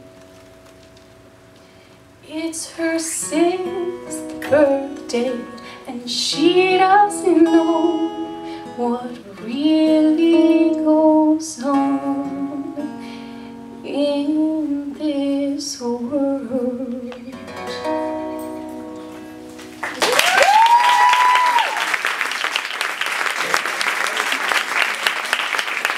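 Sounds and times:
woman singing: 2.2 - 13.1, 13.8 - 17.8
electric guitar: 16.8 - 21.8
audience applause: 19.6 - 25.9
audience cheering: 19.8 - 25.9.

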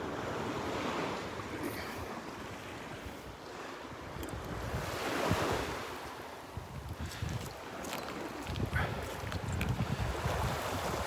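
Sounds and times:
surf washing onto beach: 0.0 - 11.0
wind rumbling on microphone: 2.7 - 11.0.

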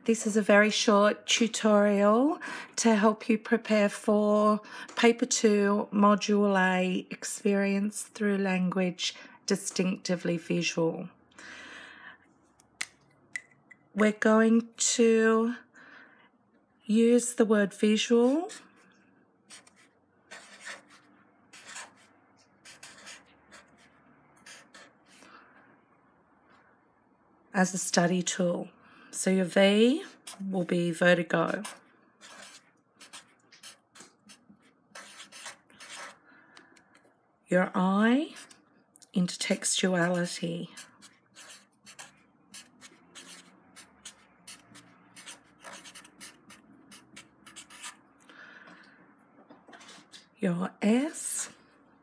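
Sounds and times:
marker writing on paper: 19.5 - 25.2, 31.5 - 36.2, 40.0 - 48.0.

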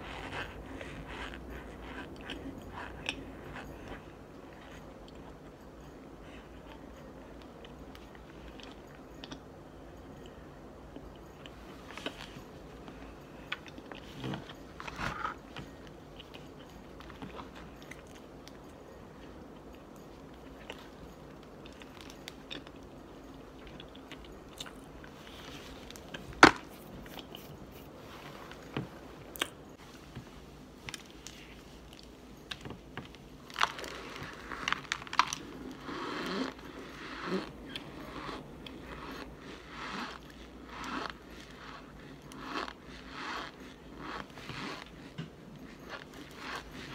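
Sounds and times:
crunchy chewing: 0.0 - 9.5, 30.9 - 46.9.

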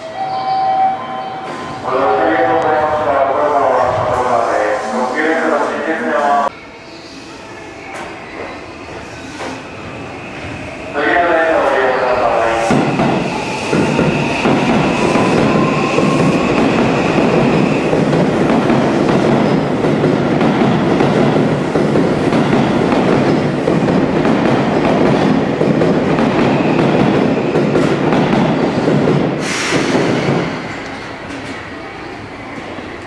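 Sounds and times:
train wheels clattering over rails: 12.7 - 31.6.

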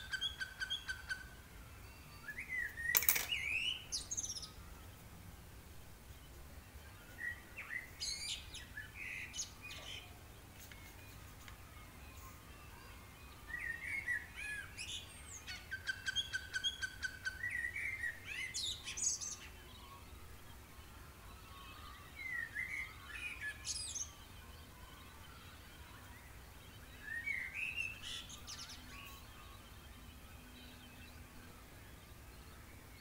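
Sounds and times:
birds chirping and whistling: 0.0 - 5.0, 6.7 - 33.0.

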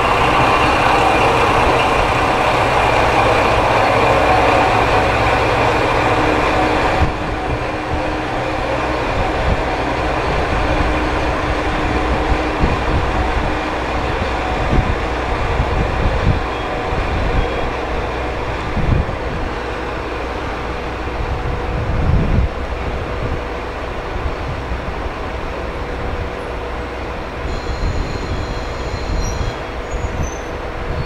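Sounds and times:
diesel train engine rumble: 0.0 - 31.0.

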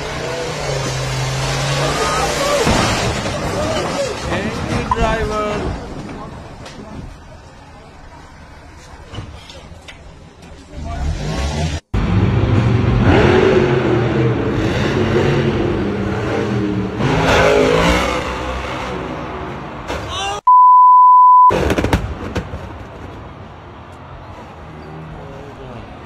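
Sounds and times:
truck engine revving: 0.0 - 4.3, 10.7 - 19.5
bleep tone: 20.5 - 21.6.

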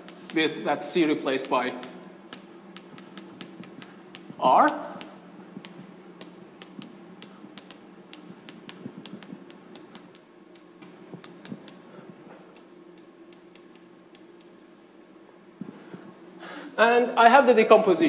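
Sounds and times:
chalk tapping on blackboard: 0.0 - 11.9, 12.5 - 14.6.

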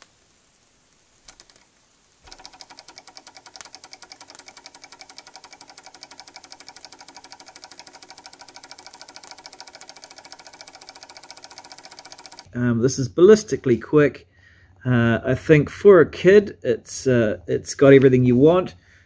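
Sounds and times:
model stirling engine rattling: 2.2 - 12.5.

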